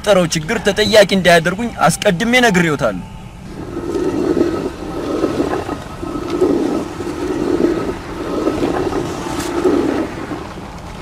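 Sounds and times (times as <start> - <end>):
stone quern grinding: 3.5 - 10.4.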